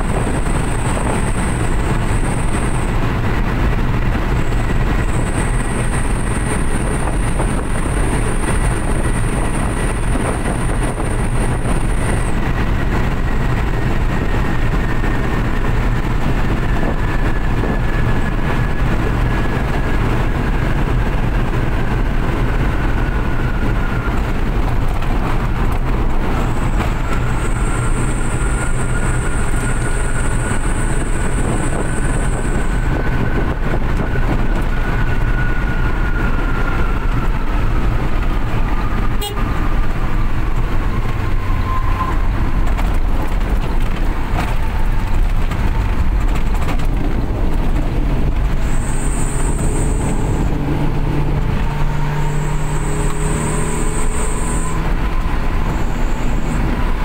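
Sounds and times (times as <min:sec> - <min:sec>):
road and wind noise: 0:00.0 - 0:57.0
truck engine drone: 0:00.0 - 0:57.0
faint whine: 0:44.2 - 0:57.0
faint high whistle: 0:48.6 - 0:50.5, 0:52.0 - 0:56.6.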